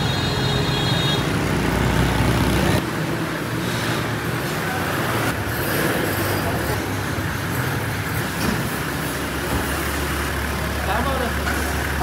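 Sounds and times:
street traffic: 0.0 - 12.0.

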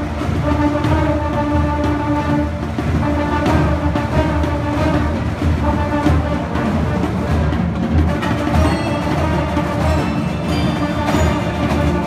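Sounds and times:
cymbals: 0.0 - 12.0
marching band playing: 0.0 - 12.0
marimbas: 7.3 - 12.0.

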